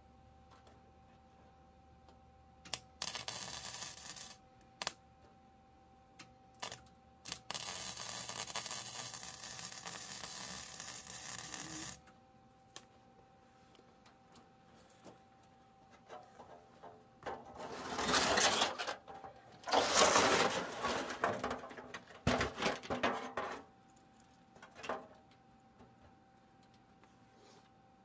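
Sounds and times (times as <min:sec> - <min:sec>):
faint steady hum: 0:00.0 - 0:28.0
arc welding crackling: 0:02.6 - 0:05.0, 0:06.5 - 0:12.1
welding pops: 0:02.6 - 0:05.0, 0:06.2 - 0:12.1.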